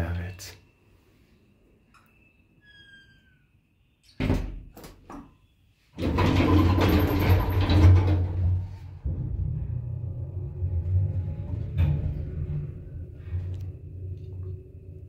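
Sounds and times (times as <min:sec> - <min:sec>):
elevator doors rumbling shut: 0:06.0 - 0:15.0
elevator low hum: 0:06.0 - 0:15.0.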